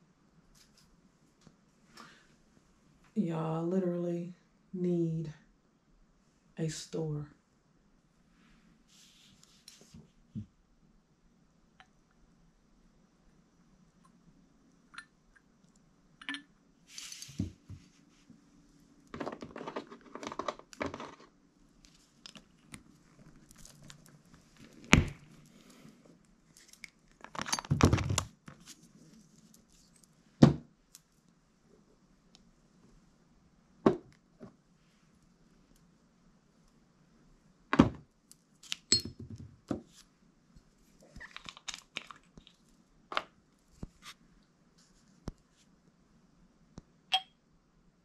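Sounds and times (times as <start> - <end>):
rattling and rustling handling noise: 19.1 - 21.3, 26.6 - 30.1.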